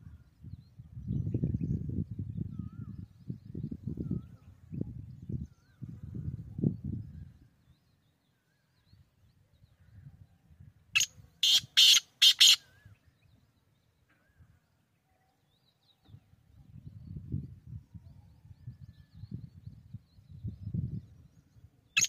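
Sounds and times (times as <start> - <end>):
bird call of short notes: 11.0 - 12.8.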